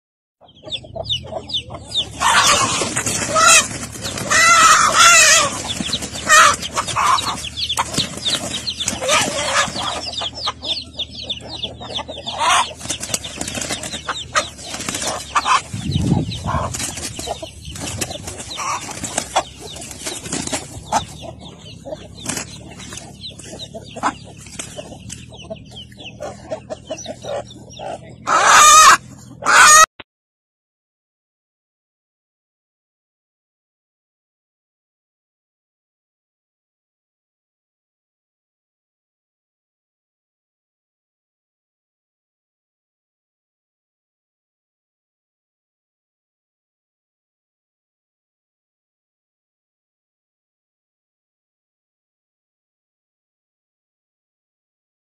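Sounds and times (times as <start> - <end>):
hen squawking in distress: 2.2 - 5.6, 28.3 - 29.9
wings flapping: 2.2 - 10.1, 12.5 - 21.2, 22.2 - 25.2.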